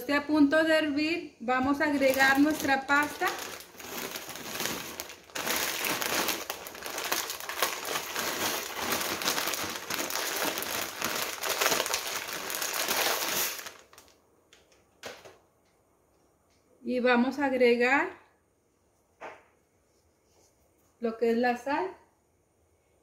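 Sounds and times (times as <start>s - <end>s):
plastic bag crinkling: 1.8s - 14.2s
pasta pouring into pot: 2.1s - 14.0s.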